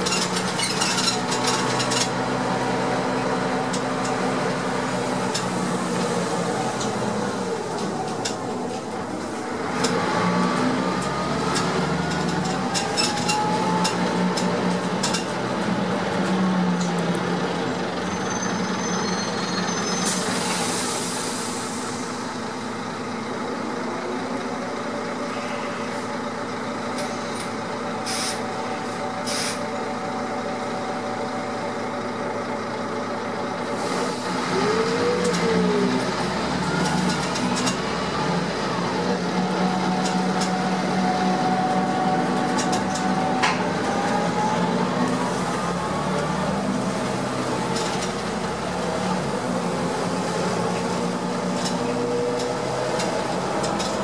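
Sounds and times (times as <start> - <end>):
rattles and clicks from bus body: 0.0 - 2.8, 3.4 - 17.3, 25.1 - 29.8, 36.8 - 38.0, 39.3 - 49.1, 49.7 - 54.0
bus engine running: 0.0 - 54.0
air hiss: 20.1 - 22.1.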